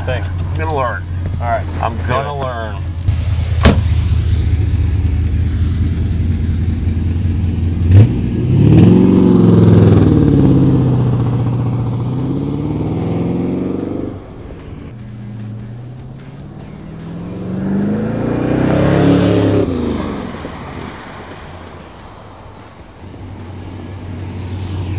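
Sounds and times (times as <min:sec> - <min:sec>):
car engine idling and revving: 0:00.0 - 0:24.9
sharp knock: 0:03.6 - 0:03.9.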